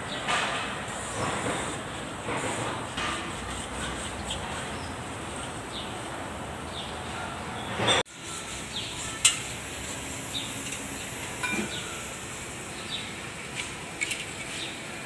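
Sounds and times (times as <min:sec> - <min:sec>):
steady background noise: 0:00.0 - 0:15.0
small birds chirping: 0:08.6 - 0:09.6, 0:10.2 - 0:12.1, 0:12.7 - 0:13.2.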